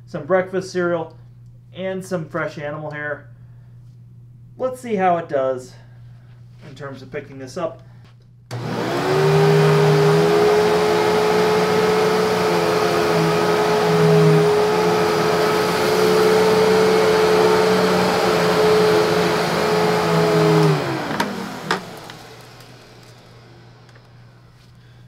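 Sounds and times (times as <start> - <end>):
vacuum cleaner motor whining: 8.5 - 25.0.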